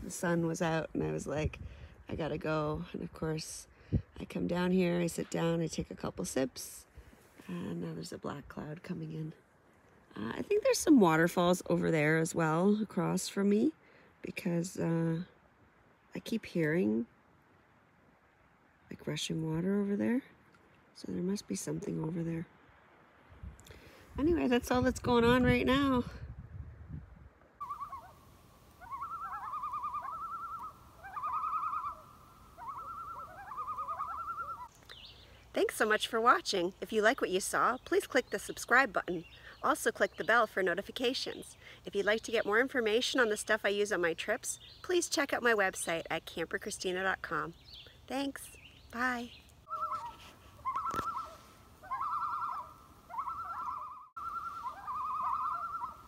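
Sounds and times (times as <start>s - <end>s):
loons giving tremolo calls: 27.6s - 34.7s, 49.2s - 56.0s.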